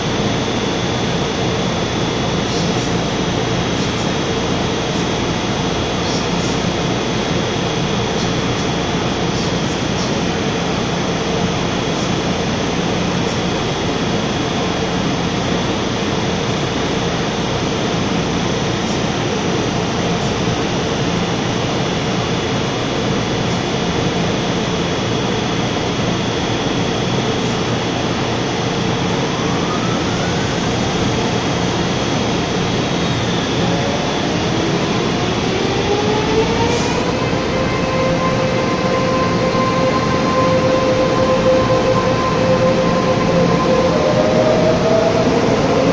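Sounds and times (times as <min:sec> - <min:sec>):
electric train equipment humming: 0:00.0 - 0:45.9
traction motors whining: 0:28.8 - 0:45.9.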